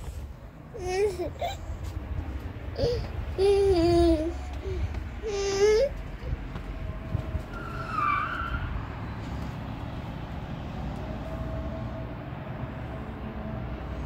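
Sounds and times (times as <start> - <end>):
distant traffic rumble: 0.0 - 14.0
child calling out: 5.2 - 6.0
high squeal: 7.5 - 8.9.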